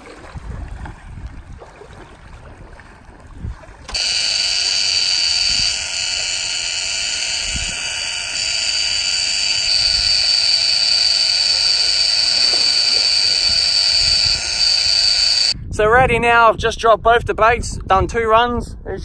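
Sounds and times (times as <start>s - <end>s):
high-pitched buzzing drone: 3.9s - 15.6s.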